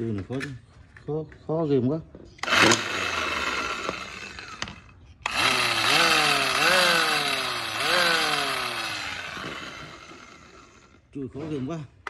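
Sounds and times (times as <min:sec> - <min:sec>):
electric chisel running: 0:02.4 - 0:11.0.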